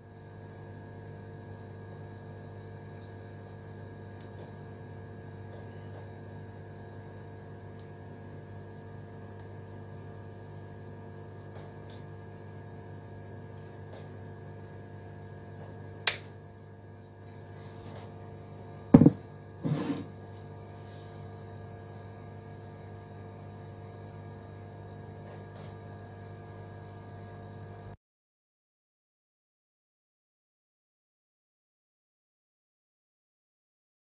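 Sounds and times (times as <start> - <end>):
electrical mains hum: 0.0 - 28.0
sharp click: 16.0 - 16.3
box knocking on wooden table: 19.0 - 20.1.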